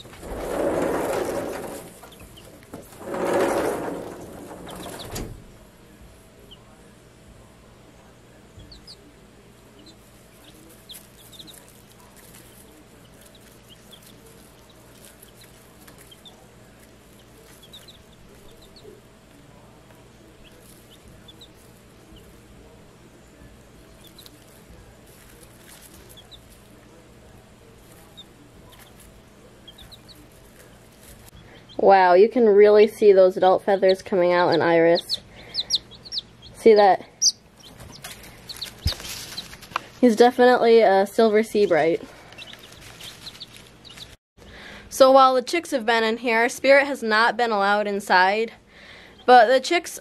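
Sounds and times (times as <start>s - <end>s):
chicks peeping: 0.0s - 5.3s, 6.4s - 6.8s, 8.0s - 31.9s, 32.8s - 40.0s, 41.5s - 44.2s
faint steady hum: 4.0s - 50.0s.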